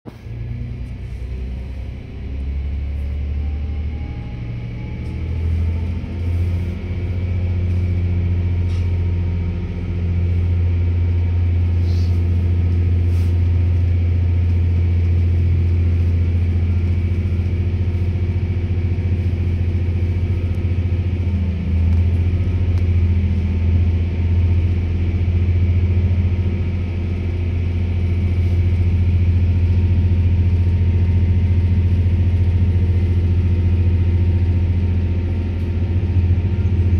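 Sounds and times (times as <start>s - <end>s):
diesel train engine running hard: 0.1s - 36.9s.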